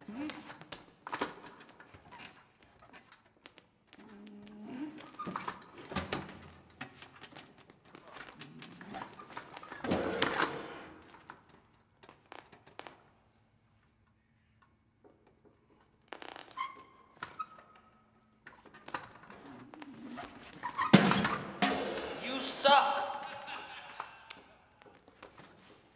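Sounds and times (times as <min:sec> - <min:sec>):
stool and stand knocked over: 0:09.8 - 0:11.1.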